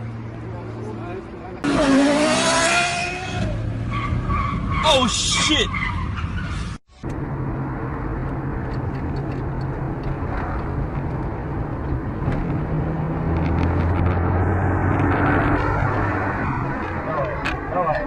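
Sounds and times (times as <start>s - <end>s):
car engine drone: 0.0s - 18.0s
tyre and road noise: 0.0s - 18.0s.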